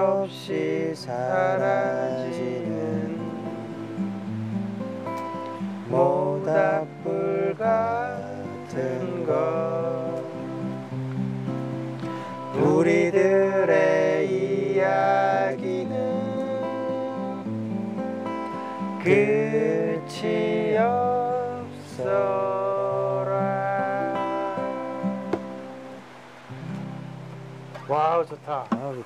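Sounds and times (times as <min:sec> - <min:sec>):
man singing: 0:00.0 - 0:04.0, 0:05.8 - 0:10.8, 0:12.5 - 0:17.6, 0:19.0 - 0:25.4
acoustic guitars strumming: 0:00.0 - 0:29.0.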